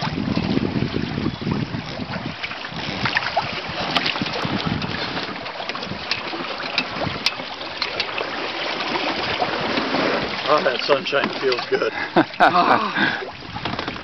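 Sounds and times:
wind blowing over microphone: 0:00.0 - 0:06.2, 0:13.0 - 0:14.0
water slapping against hulls: 0:00.0 - 0:14.0.

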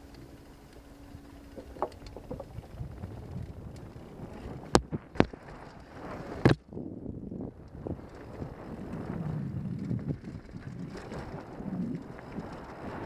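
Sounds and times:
bike rattling: 0:00.0 - 0:13.0
wind buffeting microphone: 0:00.0 - 0:13.0
tyres rumbling on dirt and rocks: 0:07.5 - 0:13.0.

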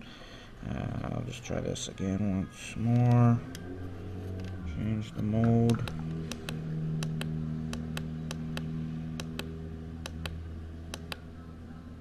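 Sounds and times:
low electrical hum: 0:00.0 - 0:12.0
monitor buttons clicking: 0:05.4 - 0:11.2.

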